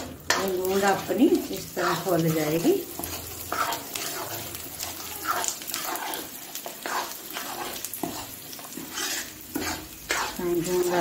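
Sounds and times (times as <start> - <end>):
light frying sizzle: 0.0 - 11.0
metal spoon scraping a pan: 0.0 - 11.0.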